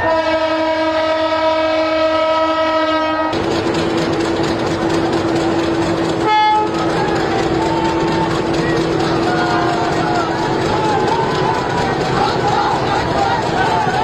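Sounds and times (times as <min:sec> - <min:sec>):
locomotive horn blast: 0:00.0 - 0:03.4, 0:06.2 - 0:08.5
train running noise: 0:00.0 - 0:14.0.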